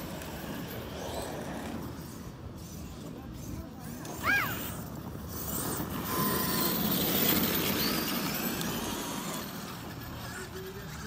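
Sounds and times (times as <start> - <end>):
electric toy truck motor whine: 4.6 - 11.0.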